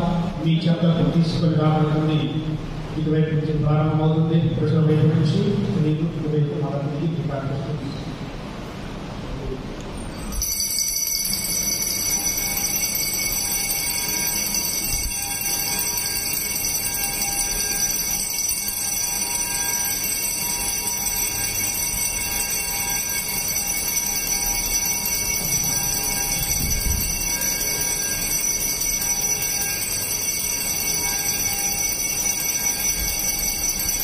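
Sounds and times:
bells ringing: 9.9 - 34.0.

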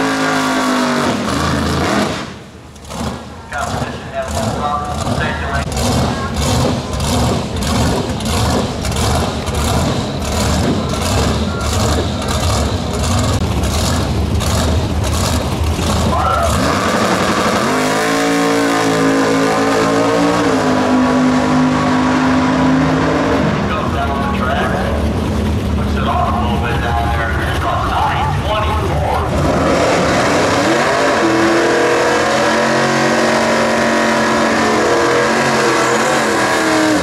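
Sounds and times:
car accelerating at full throttle: 0.0 - 37.0
car engine idling with a lope: 2.4 - 16.8, 23.7 - 29.4.

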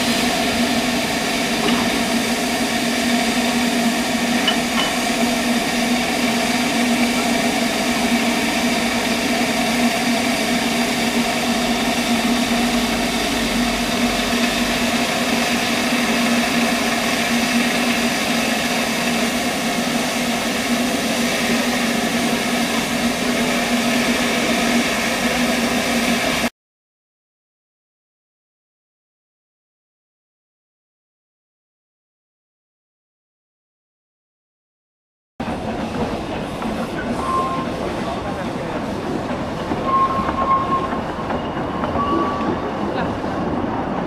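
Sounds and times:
steam hissing: 0.0 - 26.5, 35.5 - 43.9.

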